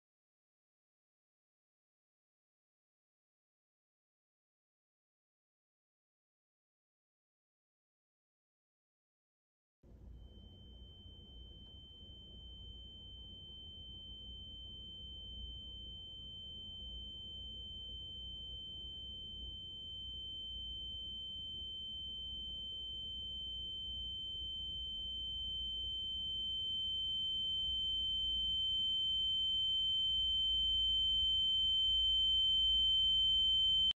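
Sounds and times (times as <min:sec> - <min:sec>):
faint low hum: 0:09.9 - 0:33.9.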